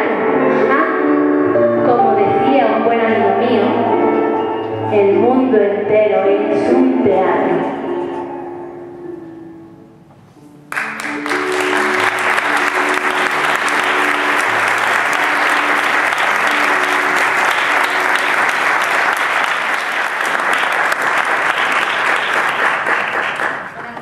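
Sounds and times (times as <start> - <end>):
background music simple melody: 0.0 - 23.5
audience applauding: 10.7 - 24.0.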